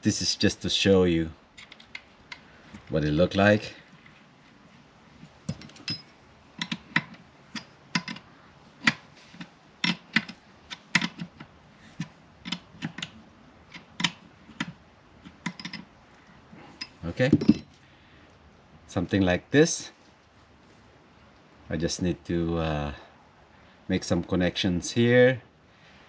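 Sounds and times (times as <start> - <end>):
wrench clicking on metal: 5.6 - 15.9.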